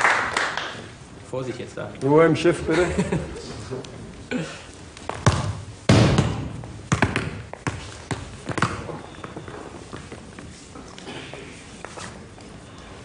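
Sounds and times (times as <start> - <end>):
ball thudding against wall: 5.1 - 9.0
ball bouncing on hard floor: 5.1 - 10.2
football kick: 5.2 - 8.9.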